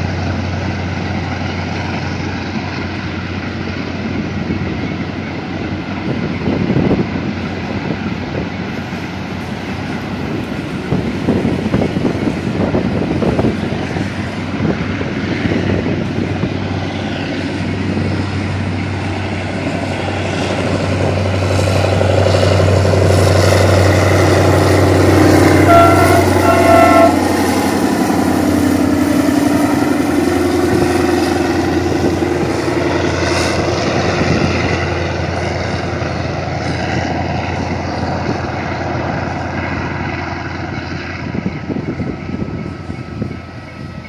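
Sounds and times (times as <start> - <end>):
diesel locomotive engine drone: 0.0 - 44.0
wagons rumbling on rails: 0.0 - 44.0
train horn blasts: 24.3 - 28.4.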